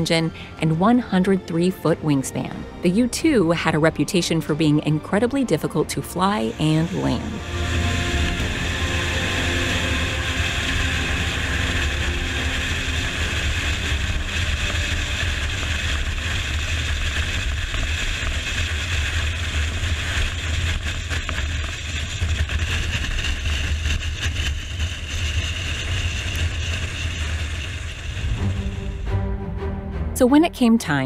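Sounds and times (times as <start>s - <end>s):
rushing wind: 6.5s - 29.4s
vehicle rumble: 19.4s - 31.0s.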